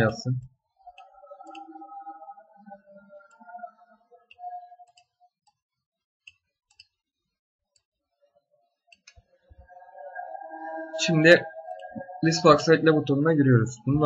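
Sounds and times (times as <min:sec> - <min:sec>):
computer mouse clicking: 0:04.3 - 0:05.6.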